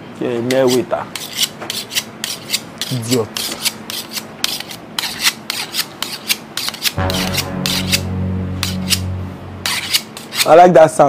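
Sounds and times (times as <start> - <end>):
knives scraping blade on blade: 1.2 - 7.0
low steady drone: 7.0 - 10.2.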